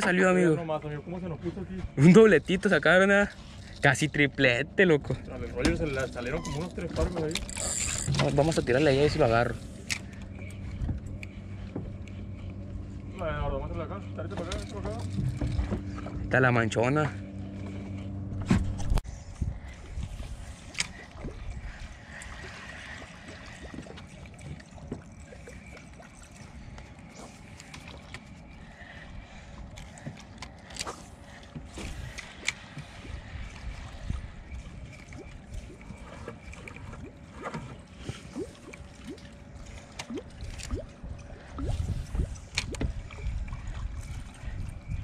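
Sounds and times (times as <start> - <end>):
water lapping against boat: 0.0 - 45.0
low rumble: 5.1 - 27.5.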